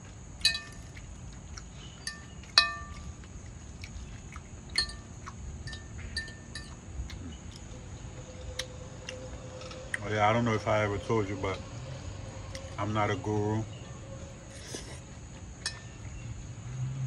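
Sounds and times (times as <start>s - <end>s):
fork clinking against ceramic bowl: 2.0s - 3.1s.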